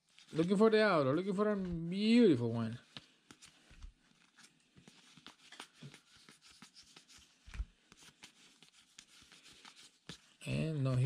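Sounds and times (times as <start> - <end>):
cards clicking and rustling: 2.8 - 10.4.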